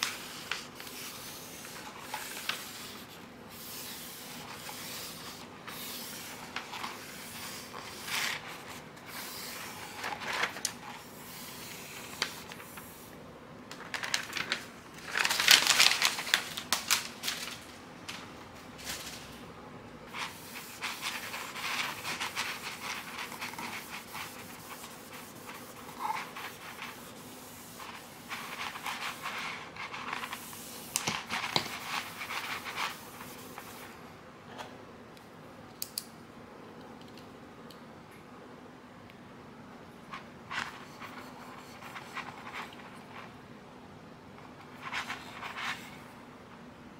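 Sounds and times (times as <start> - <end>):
vinyl sheet crinkling: 13.7 - 19.4.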